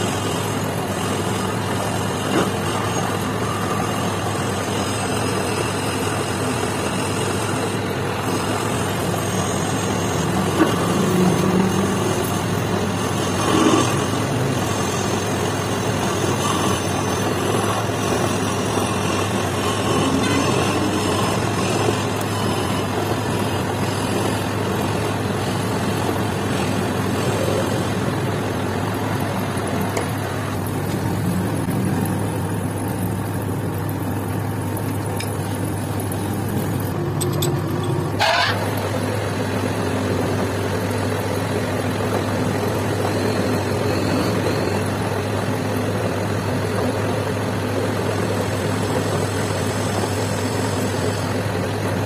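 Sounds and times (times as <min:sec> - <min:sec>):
metal lathe running: 0:00.0 - 0:52.0
cutting tool on metal: 0:16.0 - 0:22.9.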